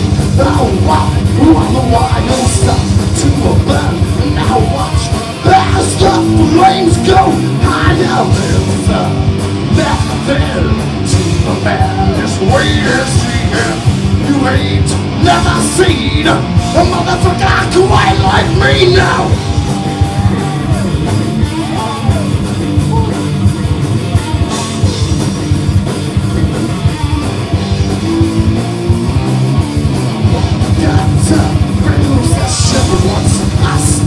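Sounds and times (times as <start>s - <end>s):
distorted electric guitars: 0.0s - 34.0s
pounding drums: 0.0s - 34.0s
person shouting vocals: 17.4s - 23.5s.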